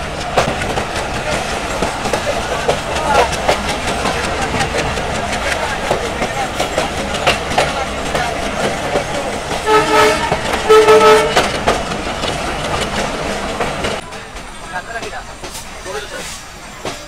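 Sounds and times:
train wheels clacking: 0.0 - 17.0
train horn blasts: 9.6 - 11.5.

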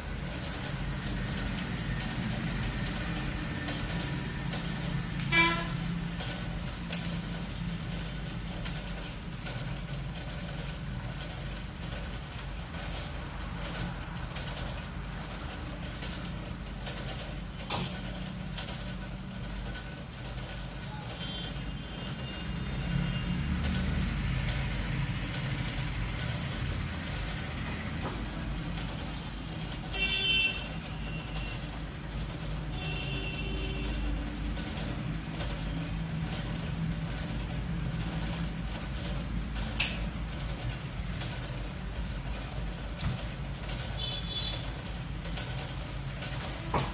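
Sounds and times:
pliers clicking on wire: 6.8 - 7.3, 39.7 - 40.1.

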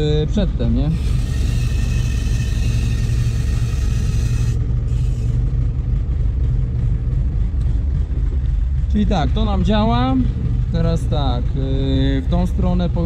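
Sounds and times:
backhoe engine running: 0.0 - 13.0
hydraulic valve hissing whine: 0.8 - 5.8.

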